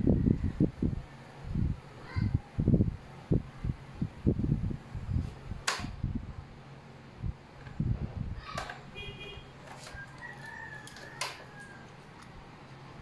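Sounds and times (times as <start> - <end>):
rooster crowing: 9.8 - 12.3.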